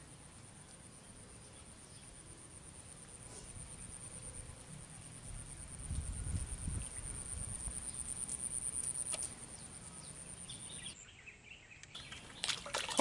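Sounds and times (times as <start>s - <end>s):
sharp water splashes: 11.9s - 13.0s.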